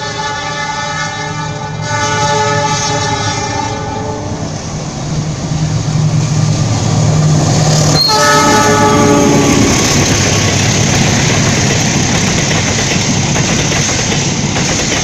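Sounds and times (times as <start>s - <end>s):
locomotive air horn: 0.0s - 4.4s, 7.9s - 9.8s
wheels on rails: 6.4s - 15.0s.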